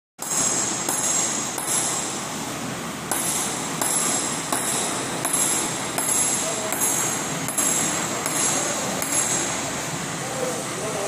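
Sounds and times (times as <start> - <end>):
hammer striking metal framing: 0.2 - 2.2, 3.1 - 9.6.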